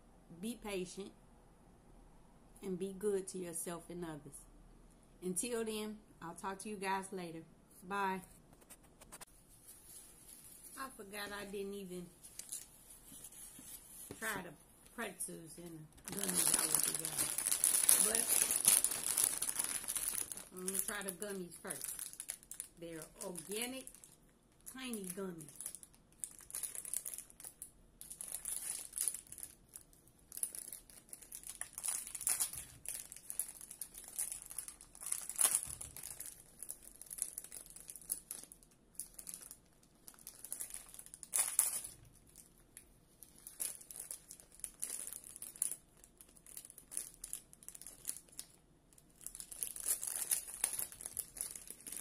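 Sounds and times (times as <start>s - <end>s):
plastic snack packet crinkling: 12.2s - 12.8s, 16.0s - 52.0s.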